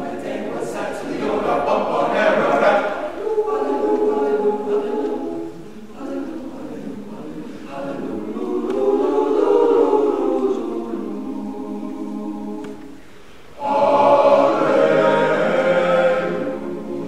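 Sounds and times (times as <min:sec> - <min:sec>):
men's chorus singing in harmony: 0:00.0 - 0:13.0, 0:13.6 - 0:17.0.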